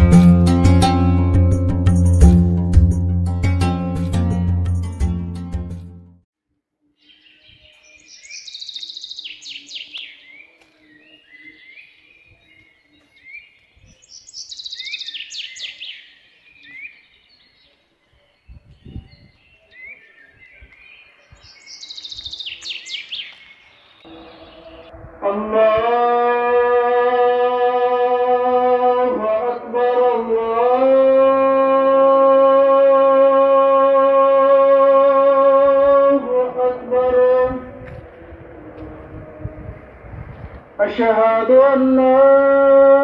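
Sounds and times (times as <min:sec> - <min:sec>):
music: 0:00.0 - 0:06.2
birds chirping: 0:06.8 - 0:25.8
songbird singing: 0:06.8 - 0:30.8.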